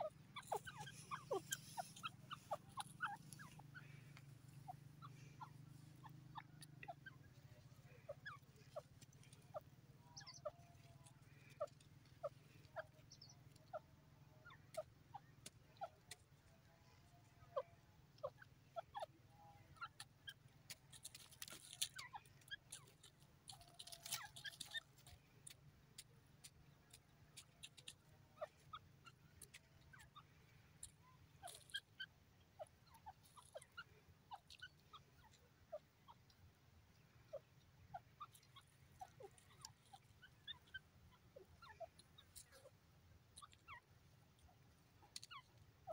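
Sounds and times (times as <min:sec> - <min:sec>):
rustling: 0:00.0 - 0:06.0, 0:20.6 - 0:25.6
bird clucking: 0:00.0 - 0:45.9.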